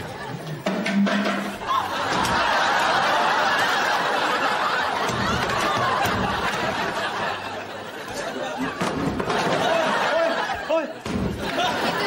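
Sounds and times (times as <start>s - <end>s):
audience laughing: 1.4s - 12.0s
chatter: 1.4s - 12.0s.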